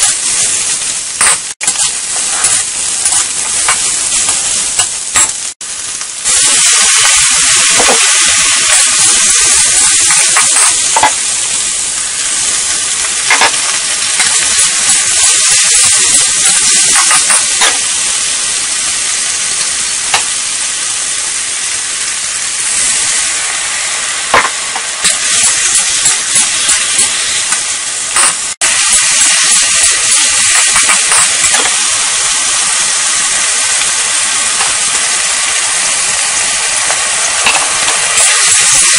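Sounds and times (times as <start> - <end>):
food sizzling in a wok: 0.0 - 38.9
metal spatula scraping wok: 1.6 - 5.2.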